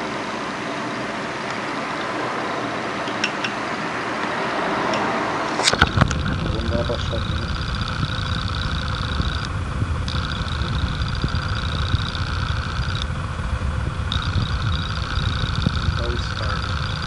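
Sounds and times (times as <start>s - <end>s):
turntable low rumble: 0.0s - 17.0s
faint high whine: 5.4s - 17.0s.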